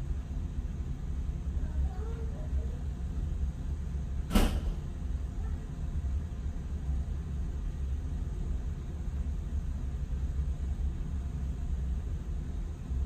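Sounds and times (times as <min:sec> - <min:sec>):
steady low rumble: 0:00.0 - 0:13.0
sharp knock: 0:04.3 - 0:04.8.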